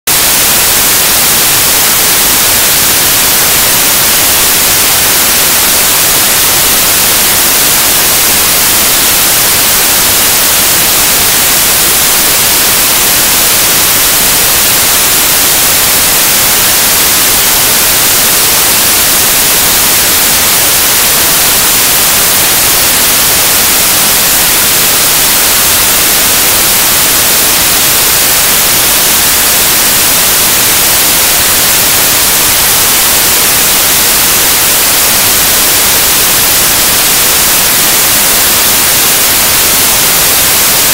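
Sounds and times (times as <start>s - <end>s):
whitewater rushing over rocks: 0.1s - 40.9s.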